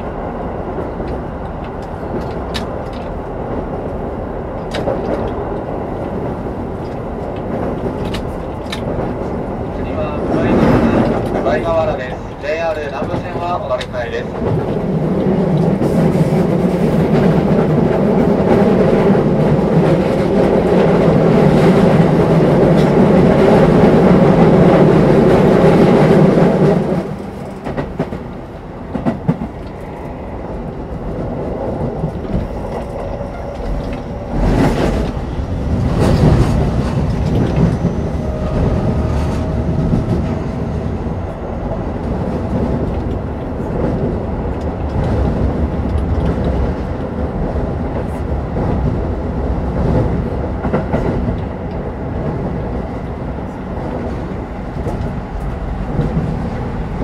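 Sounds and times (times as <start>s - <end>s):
electric train running: 17.5s - 46.6s.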